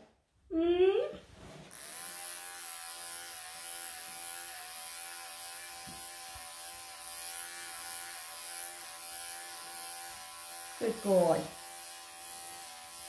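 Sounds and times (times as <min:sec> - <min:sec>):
electric pet clippers buzzing: 0:01.7 - 0:13.0.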